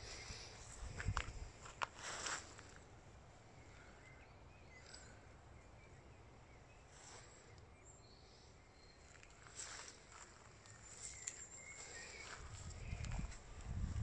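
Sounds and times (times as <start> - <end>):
distant bird chirps: 2.6 - 13.3.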